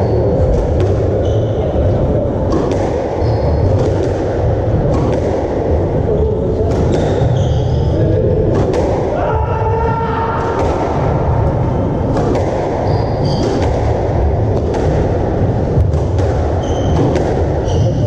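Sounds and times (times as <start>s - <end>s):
squash ball thocks: 0.4s - 1.2s, 2.4s - 7.4s, 8.4s - 9.2s, 10.4s - 18.0s
shoes squeaking on wooden floor: 16.6s - 18.0s.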